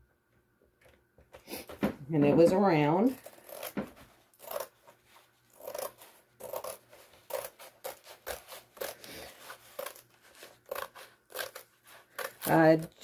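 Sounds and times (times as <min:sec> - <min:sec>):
paper rustling and scraping: 0:03.1 - 0:13.0.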